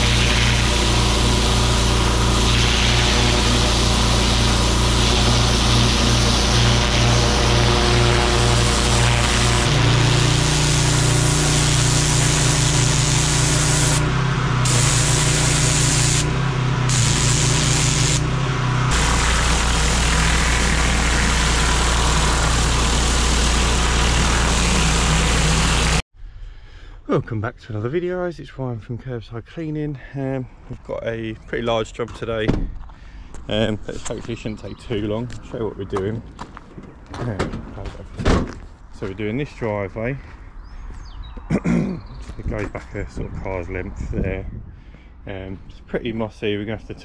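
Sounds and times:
high-pressure water jet hiss: 0.0s - 16.3s, 16.9s - 18.3s, 18.9s - 26.0s
pressure washer engine hum: 0.0s - 26.0s
rotary surface cleaner: 0.0s - 26.0s.

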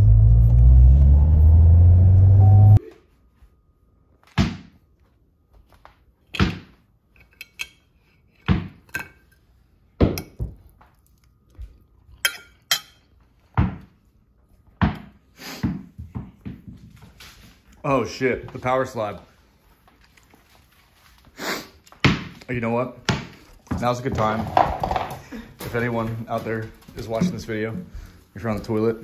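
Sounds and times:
car engine rumble inside cabin: 0.0s - 2.8s
tennis ball bouncing on wooden floor: 14.8s - 16.8s.

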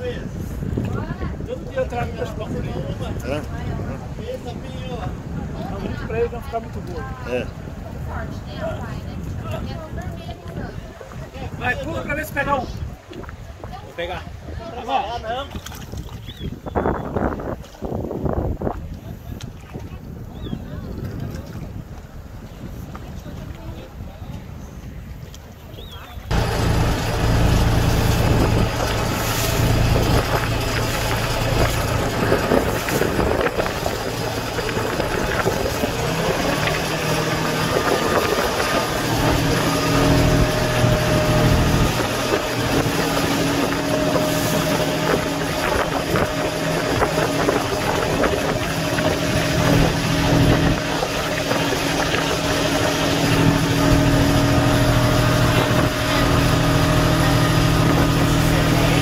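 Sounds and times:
boat diesel engine running: 26.3s - 59.0s.

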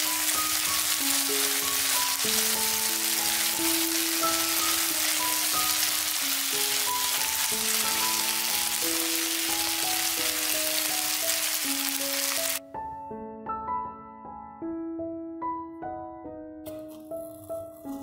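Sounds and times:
vegetables sizzling in a pan: 0.0s - 12.6s
gentle piano music: 0.0s - 18.0s.

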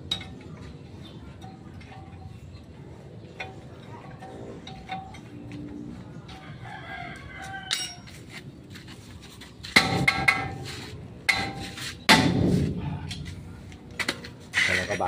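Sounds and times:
hand tools clinking on metal: 1.3s - 5.9s, 7.6s - 8.3s
rooster crowing: 6.3s - 8.1s.

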